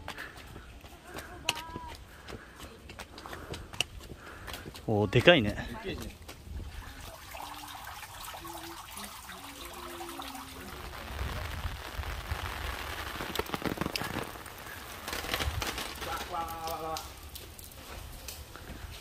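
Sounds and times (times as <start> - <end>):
water running into stone basins: 2.2 - 19.0
light rain hissing: 4.2 - 19.0.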